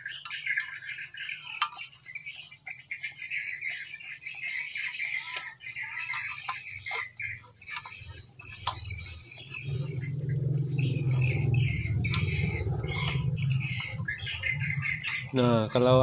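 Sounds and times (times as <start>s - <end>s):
birds chirping: 0.0s - 16.0s
low steady hum: 6.9s - 16.0s.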